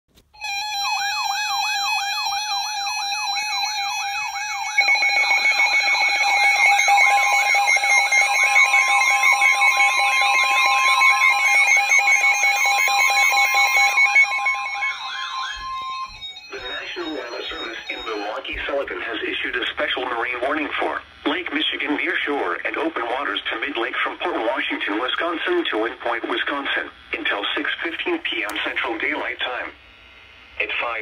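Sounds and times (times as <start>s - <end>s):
long steady alarm tone: 0.3s - 31.0s
siren warble: 0.4s - 21.0s
steady beeping tones: 0.4s - 29.7s.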